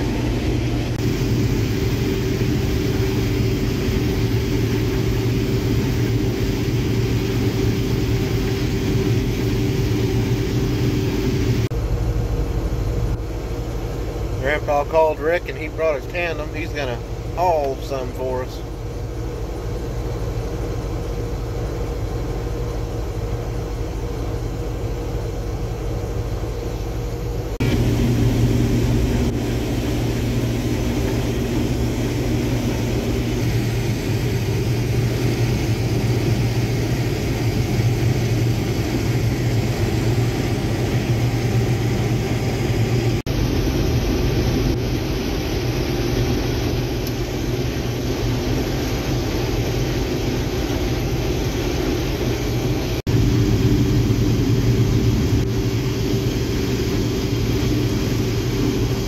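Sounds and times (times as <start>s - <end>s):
combine harvester engine hum: 0.0s - 59.0s.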